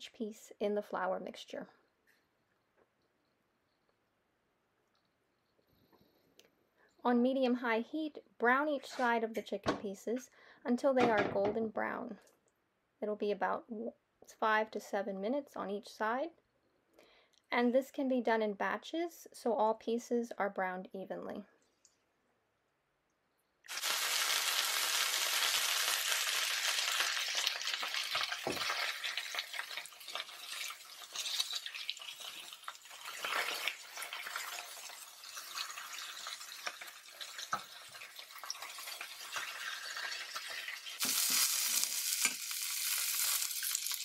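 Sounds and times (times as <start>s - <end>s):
chicken sizzling in oil: 23.7s - 44.0s.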